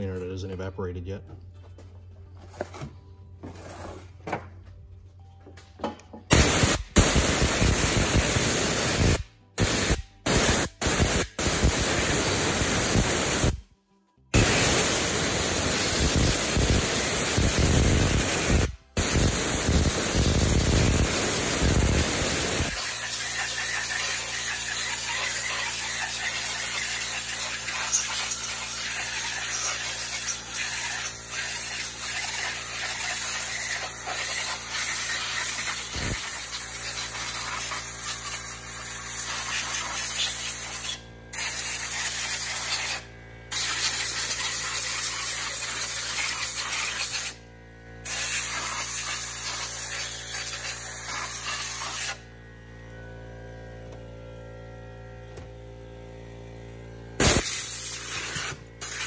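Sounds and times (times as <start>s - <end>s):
compressed air hissing: 6.3s - 13.6s, 14.4s - 47.4s, 48.0s - 52.2s, 57.2s - 59.0s.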